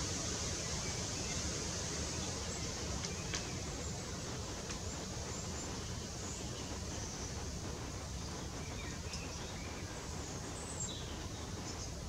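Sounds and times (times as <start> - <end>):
steady outdoor hiss: 0.0 - 12.0
small songbirds calling: 8.0 - 12.0.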